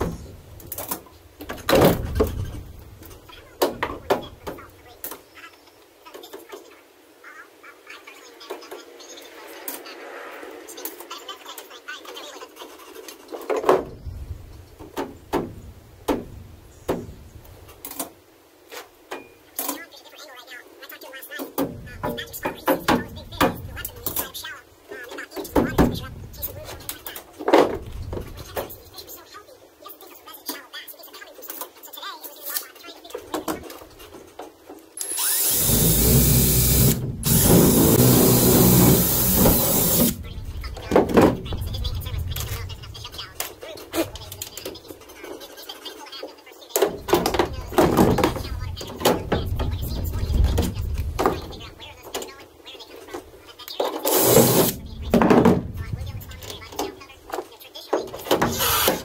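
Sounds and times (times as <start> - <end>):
cordless drill drilling into metal: 35.0 - 40.2, 54.1 - 54.8, 58.5 - 59.0.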